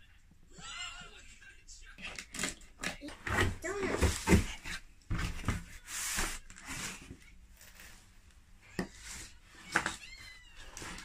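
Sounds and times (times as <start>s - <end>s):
cardboard rustling and scraping: 3.1s - 8.2s, 8.8s - 11.0s.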